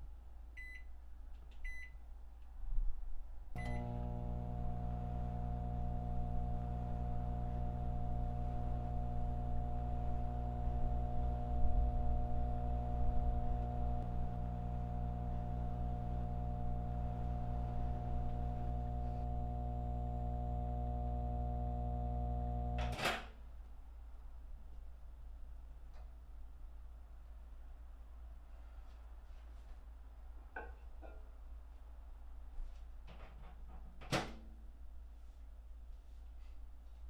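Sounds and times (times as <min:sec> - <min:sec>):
microwave oven humming: 0:03.6 - 0:23.1
microwave click: 0:03.6 - 0:23.2.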